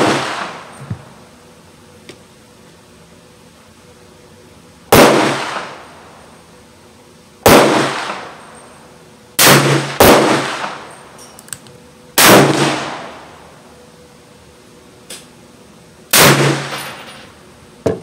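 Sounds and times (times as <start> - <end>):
revolver gunshots echoing: 0.0 - 0.8, 4.9 - 5.9, 7.4 - 8.4, 9.4 - 10.9, 12.2 - 13.2, 16.1 - 17.0.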